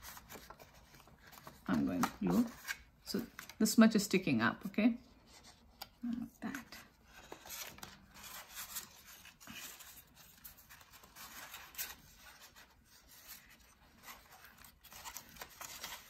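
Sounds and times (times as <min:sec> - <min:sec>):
paper rustling and rubbing: 0:00.0 - 0:03.6, 0:05.1 - 0:16.0.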